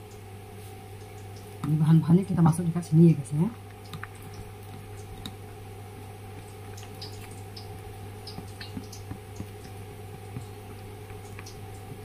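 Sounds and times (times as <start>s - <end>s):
steady low hum: 0.0s - 12.0s
soft squishes: 3.2s - 12.0s.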